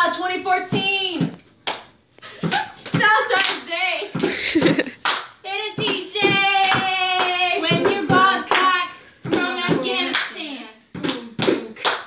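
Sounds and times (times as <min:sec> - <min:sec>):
hand claps beat: 0:01.6 - 0:12.0
young women singing: 0:05.5 - 0:11.8.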